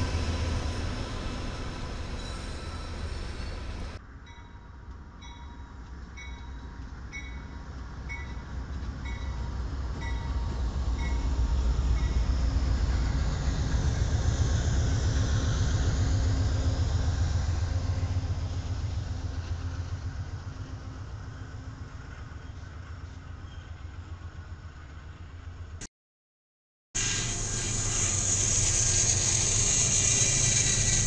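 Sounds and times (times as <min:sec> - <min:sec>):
locomotive bell ringing: 0:00.0 - 0:11.4
diesel locomotive passing: 0:00.0 - 0:25.8, 0:27.0 - 0:31.0
hiss: 0:27.0 - 0:31.0.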